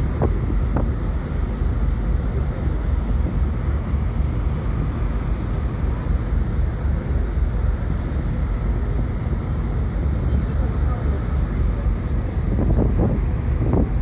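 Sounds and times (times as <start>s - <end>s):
wind buffeting microphone: 0.0s - 1.9s, 12.1s - 14.0s
rush of wind and water: 0.0s - 14.0s.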